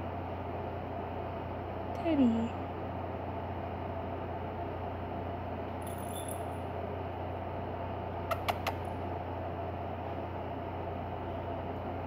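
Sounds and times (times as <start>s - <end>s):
steady background hum: 0.0s - 12.0s
puppy licking wet clicks: 8.3s - 8.8s.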